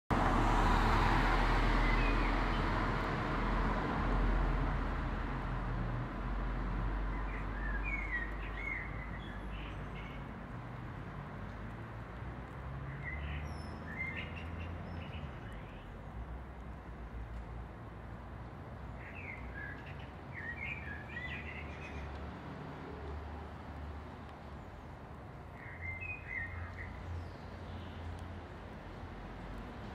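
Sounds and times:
small birds chirping: 7.1s - 10.4s, 12.6s - 16.3s, 18.8s - 22.2s, 24.3s - 28.5s.

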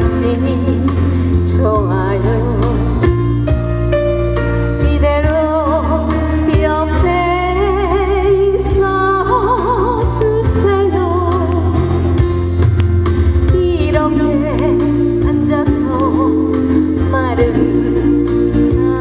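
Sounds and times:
woman singing a ballad: 0.0s - 3.6s, 4.7s - 12.6s, 13.4s - 19.0s
bass: 0.0s - 19.0s
drum beats: 9.6s - 19.0s.

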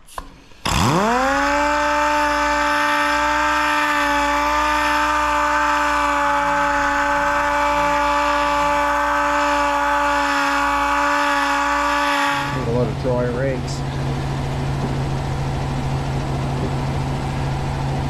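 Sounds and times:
air sander whine: 0.0s - 18.0s.

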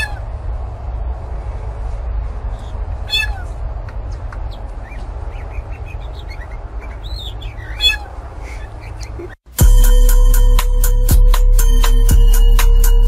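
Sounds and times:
low rumble: 0.0s - 9.8s
bird giving meow-like calls: 3.0s - 3.5s, 7.2s - 8.2s.

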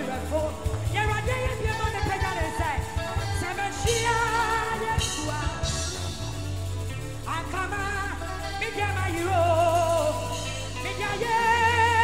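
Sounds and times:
gospel band music: 0.0s - 12.0s
person singing: 0.0s - 12.0s.

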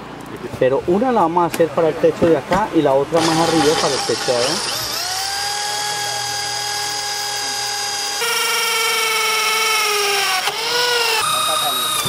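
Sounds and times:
electric drill whining: 3.2s - 12.0s.

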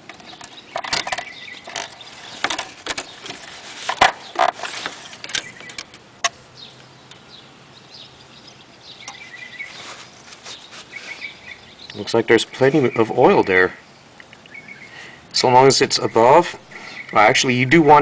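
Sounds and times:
birds chirping: 0.0s - 18.0s
dipstick scraping in tube: 1.1s - 5.4s, 9.6s - 11.3s.

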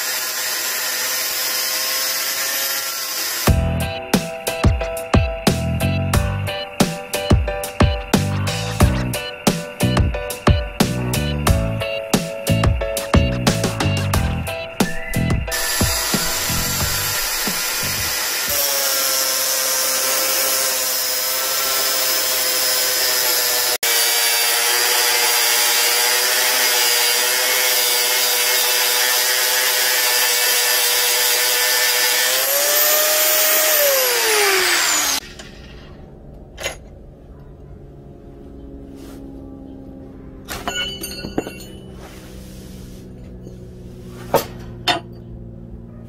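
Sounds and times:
angle grinder cutting steel: 0.0s - 4.6s, 13.5s - 36.1s.

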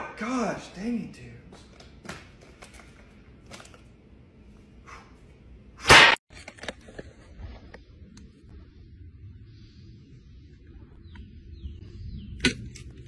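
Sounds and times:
loud sharp smack: 5.8s - 6.2s.

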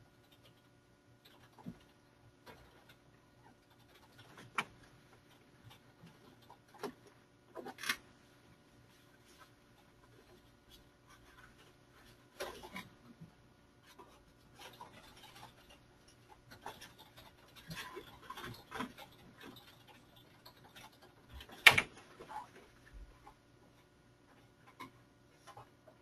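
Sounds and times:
faint clicks and rustling: 8.8s - 26.0s.

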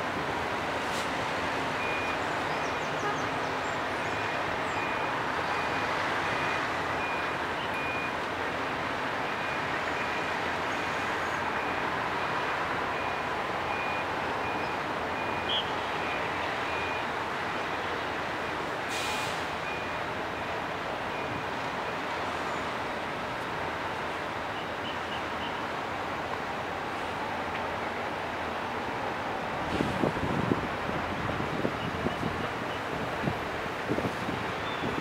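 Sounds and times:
vehicles rolling: 0.0s - 35.0s
reversing alarm beeping: 1.8s - 2.2s, 4.1s - 8.2s, 12.9s - 17.7s.

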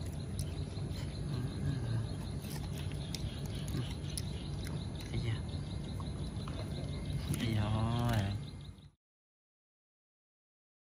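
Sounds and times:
faint bird chirps: 0.0s - 9.0s
steady low hum: 0.0s - 9.0s
dog gnawing on a bone: 2.2s - 5.2s.

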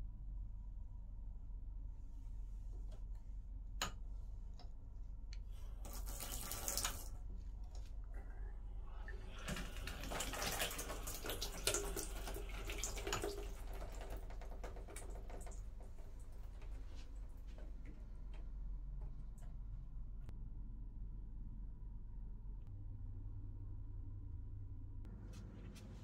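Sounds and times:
water running into tub: 5.8s - 7.2s, 9.0s - 18.0s.

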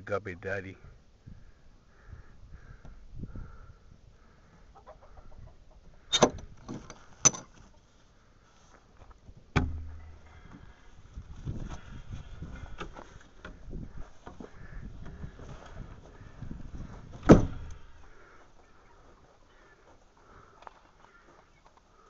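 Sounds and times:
hen clucking: 4.2s - 6.2s.

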